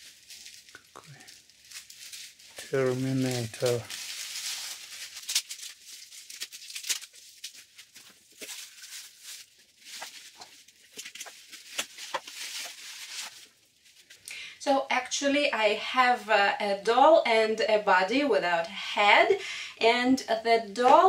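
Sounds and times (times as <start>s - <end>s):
paper and bubble wrap crinkling: 0.0s - 14.2s.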